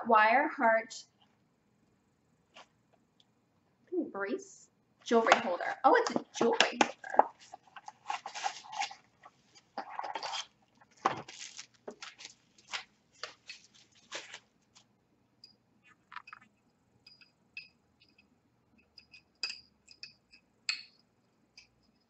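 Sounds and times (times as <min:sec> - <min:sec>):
packaging paper rustling and tearing: 0:07.3 - 0:14.8
high ringing clinks on ceramic: 0:17.0 - 0:18.3, 0:18.9 - 0:21.0.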